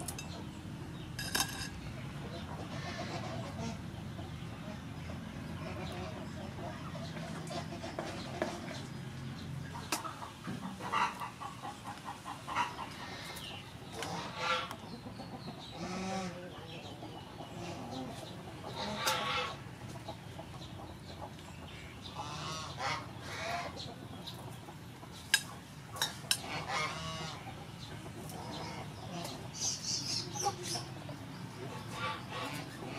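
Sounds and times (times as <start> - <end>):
chickens clucking: 0.0 - 32.9.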